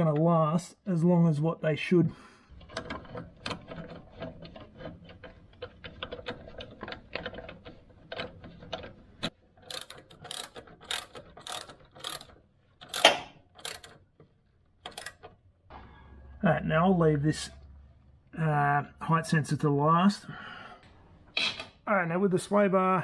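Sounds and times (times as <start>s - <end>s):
hand ratchet clicking: 9.6s - 14.0s, 14.8s - 15.3s.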